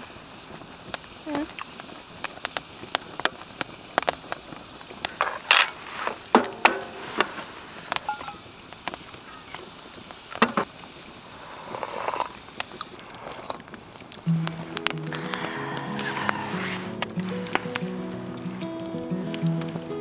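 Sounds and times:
hot water pouring: 0:00.0 - 0:20.0
wood fire crackling and popping: 0:00.0 - 0:20.0
metallic clinks of kettle and cup: 0:08.1 - 0:08.4.

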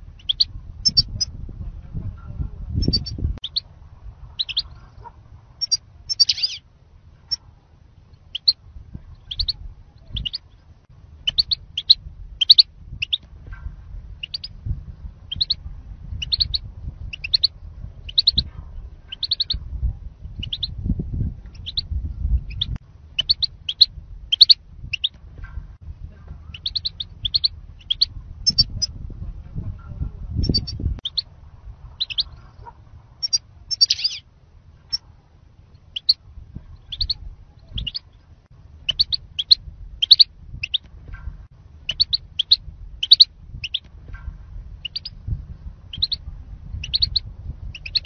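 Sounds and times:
low rumble: 0:00.0 - 0:48.0
goldfinch chirping: 0:00.2 - 0:01.2, 0:04.4 - 0:04.8, 0:05.6 - 0:06.6, 0:09.2 - 0:10.5, 0:11.2 - 0:13.2, 0:14.2 - 0:14.5, 0:15.3 - 0:15.6, 0:16.2 - 0:17.5, 0:18.1 - 0:18.4, 0:19.1 - 0:19.6, 0:20.4 - 0:20.7, 0:21.5 - 0:21.8, 0:22.5 - 0:25.1, 0:26.5 - 0:28.8, 0:30.4 - 0:31.2, 0:32.0 - 0:32.4, 0:33.2 - 0:34.2, 0:35.9 - 0:36.2, 0:36.8 - 0:38.1, 0:38.9 - 0:40.8, 0:41.9 - 0:43.9, 0:44.8 - 0:45.2, 0:45.9 - 0:46.2, 0:46.8 - 0:48.0.

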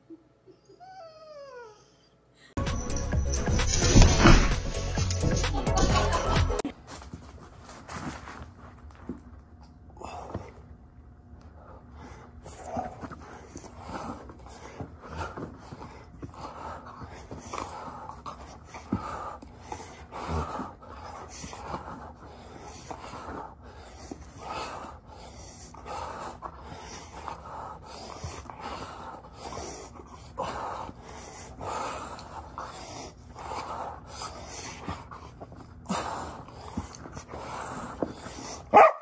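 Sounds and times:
dog panting and snorting: 0:12.4 - 0:38.7.

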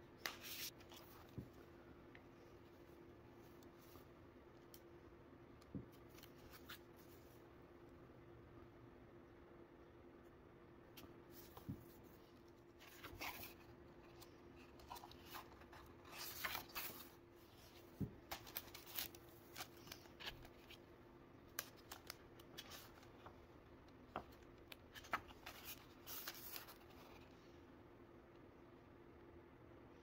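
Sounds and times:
paper prints sliding and rustling: 0:12.8 - 0:20.8, 0:24.9 - 0:27.2.

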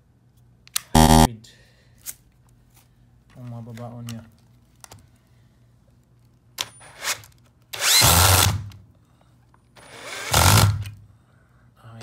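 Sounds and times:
cordless drill driving screw: 0:07.8 - 0:08.5, 0:09.9 - 0:10.8.

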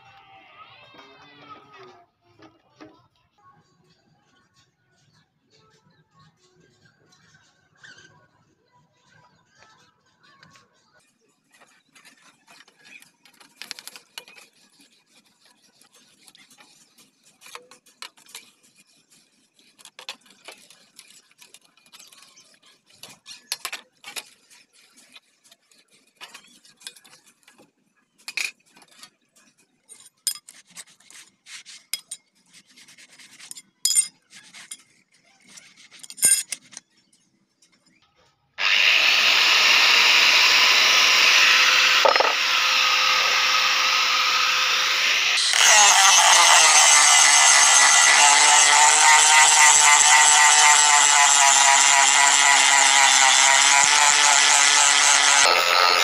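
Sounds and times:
angle grinder running: 0:38.6 - 0:56.0.

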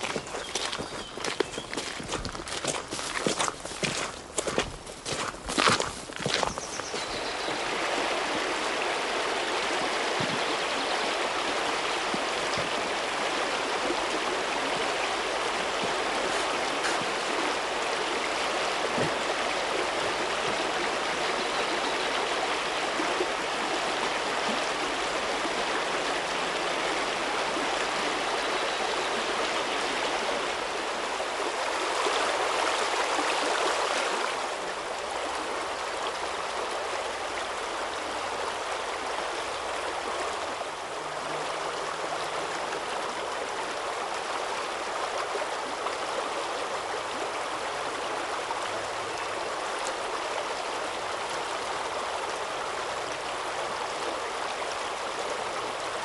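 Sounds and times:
river rushing over rocks: 0:06.9 - 0:56.0.

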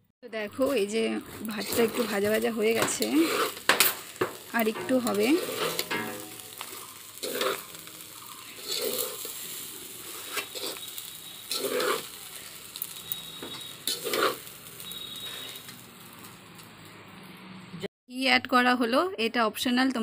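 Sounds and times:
faint sizzle: 0:00.6 - 0:17.6
spatula scraping metal pot: 0:01.5 - 0:14.5.

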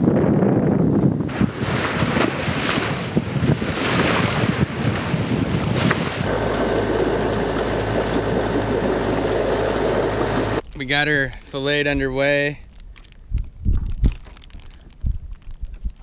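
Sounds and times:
wind buffeting microphone: 0:00.0 - 0:10.6, 0:12.6 - 0:16.0
seawater splashing: 0:01.3 - 0:10.6
steady low drone: 0:06.2 - 0:10.6.

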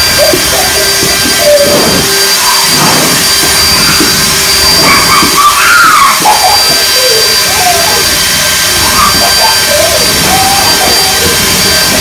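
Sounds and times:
children shrieking: 0:00.0 - 0:12.0
electric leaf blower running: 0:00.0 - 0:12.0.

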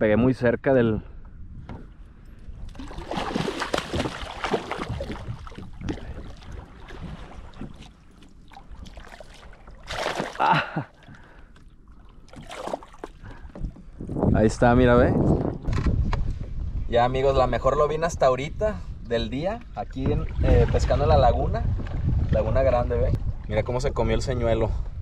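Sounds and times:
water splashing: 0:02.7 - 0:13.8.

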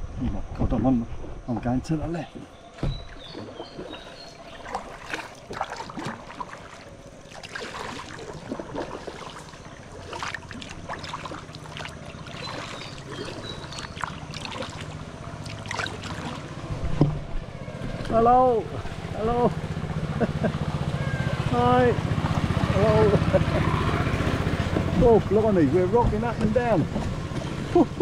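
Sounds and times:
boat engine humming: 0:00.9 - 0:28.0
paddle splashing in water: 0:02.7 - 0:19.1, 0:21.0 - 0:28.0
water dripping: 0:03.1 - 0:16.5.

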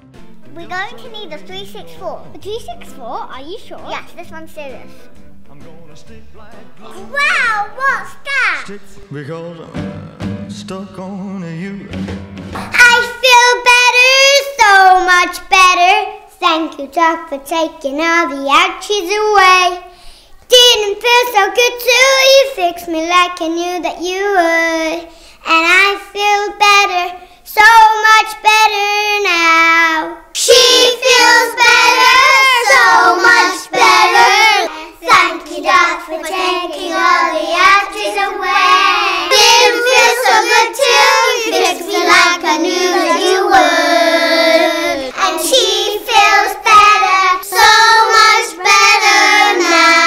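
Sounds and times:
young children singing a jingle: 0:12.7 - 0:50.0.

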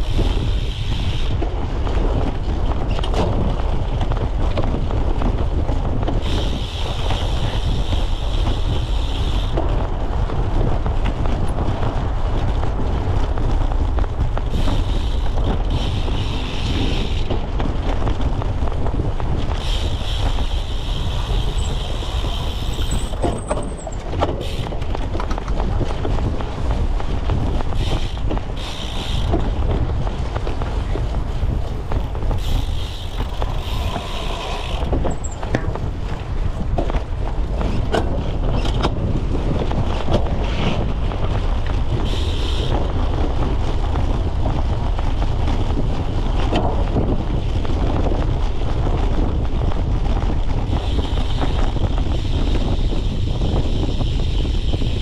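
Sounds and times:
bike rattling on rough ground: 0:00.0 - 0:55.0
wind buffeting microphone: 0:00.0 - 0:55.0.

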